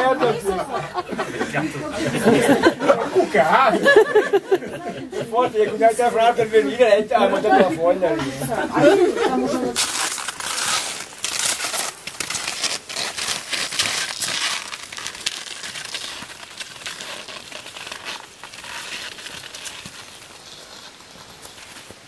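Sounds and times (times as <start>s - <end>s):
skis crunching over crusty snow: 5.4s - 22.0s
ski pole plants: 5.7s - 22.0s.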